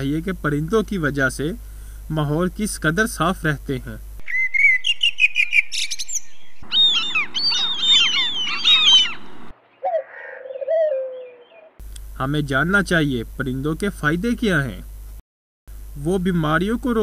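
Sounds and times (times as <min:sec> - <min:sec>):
bird chirps: 0:04.2 - 0:11.8
flock chirping chorus: 0:04.2 - 0:11.8
soft low bird calls: 0:04.2 - 0:11.8.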